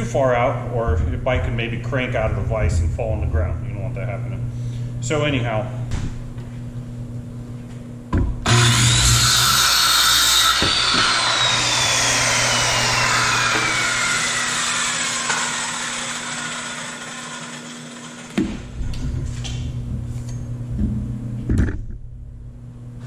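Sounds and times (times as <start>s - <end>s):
circular saw cutting wood: 8.4s - 18.4s.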